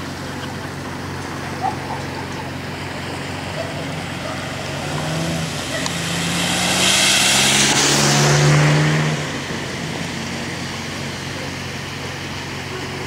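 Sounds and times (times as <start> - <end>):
car engine hum: 0.0 - 13.0
tyre hiss on wet road: 3.9 - 8.4.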